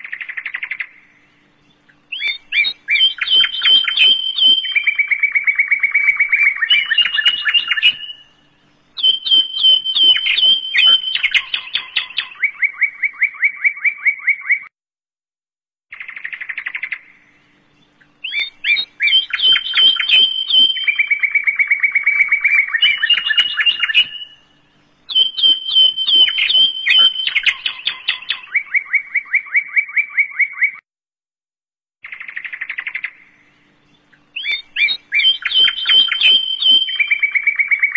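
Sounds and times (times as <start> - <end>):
songbird chirping and trilling: 0.0 - 14.7, 15.9 - 30.8, 32.0 - 37.9.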